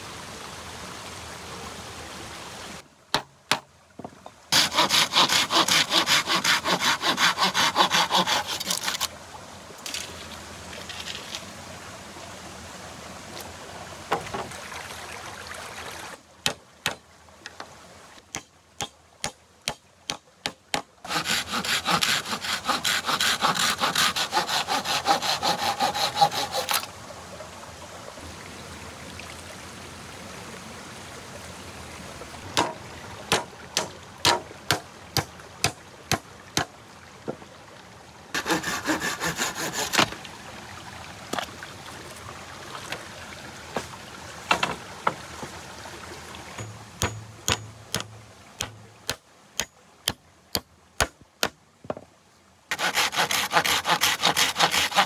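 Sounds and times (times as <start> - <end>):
hand saw cutting wood: 4.5 - 9.1, 20.1 - 26.9, 32.6 - 35.8, 38.4 - 40.2, 46.6 - 49.7, 52.7 - 55.0
sharp knocks: 32.6 - 36.7, 46.6 - 49.7.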